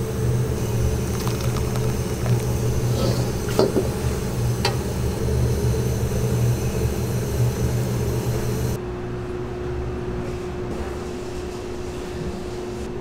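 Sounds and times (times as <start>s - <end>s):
kitchen wok range roar: 0.0s - 8.8s
room hum with held tone: 0.0s - 13.0s.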